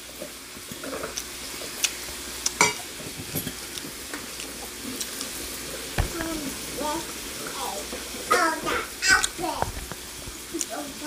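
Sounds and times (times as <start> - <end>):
meat sizzling on grill pan: 0.0 - 11.0.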